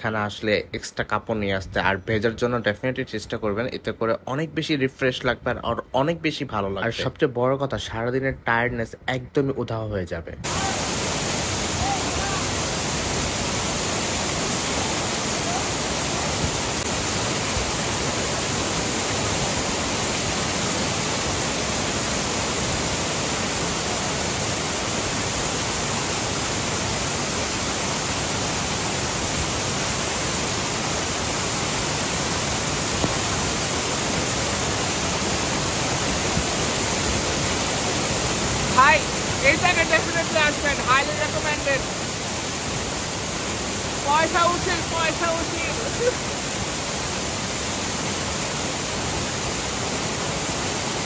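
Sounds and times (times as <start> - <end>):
waterfall splashing onto boulders: 10.4 - 51.0.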